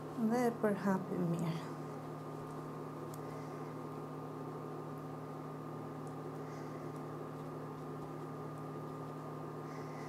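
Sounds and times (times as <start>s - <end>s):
induction cooktop humming: 0.0s - 10.0s.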